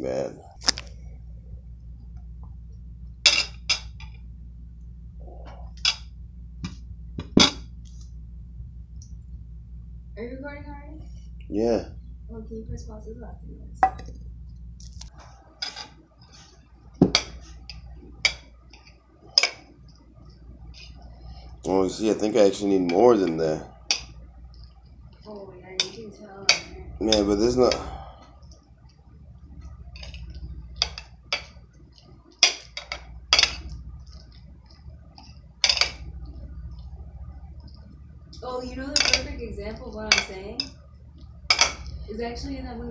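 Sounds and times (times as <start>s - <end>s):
steady low hum: 0.0s - 42.9s
knife clinking on ceramic plate: 3.3s - 4.0s, 32.4s - 33.7s, 38.9s - 39.3s, 41.5s - 41.9s.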